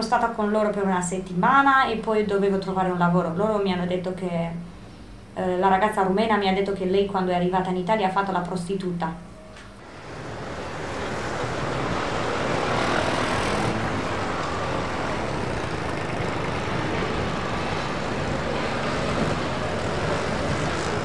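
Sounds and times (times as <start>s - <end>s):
city traffic passing: 9.3s - 21.0s.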